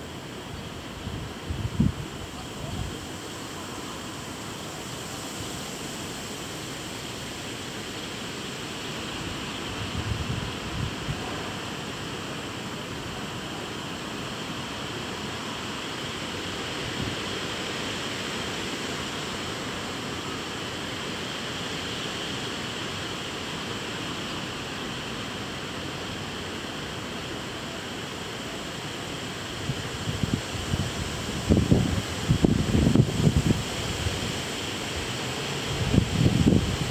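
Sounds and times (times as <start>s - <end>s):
wind buffeting microphone: 29.7s - 34.3s, 35.7s - 36.9s.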